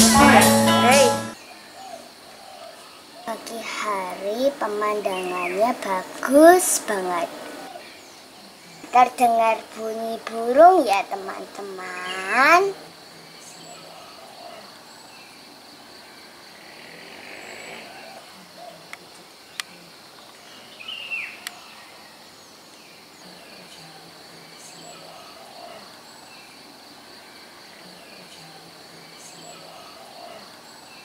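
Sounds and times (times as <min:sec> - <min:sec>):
birds calling: 0:00.0 - 0:12.7
insects droning: 0:00.0 - 0:31.0.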